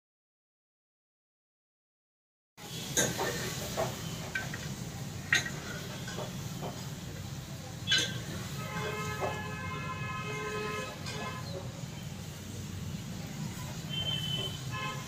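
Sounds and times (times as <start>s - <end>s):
long horn honk: 8.5s - 11.4s, 13.9s - 15.0s.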